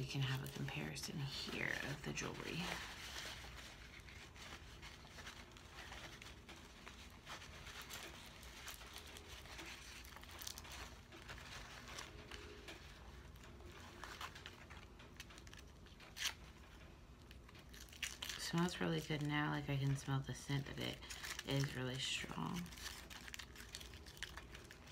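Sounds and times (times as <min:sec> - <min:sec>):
paper towel rustling: 0:00.0 - 0:16.8
plastic wrapping crinkling: 0:00.0 - 0:24.9.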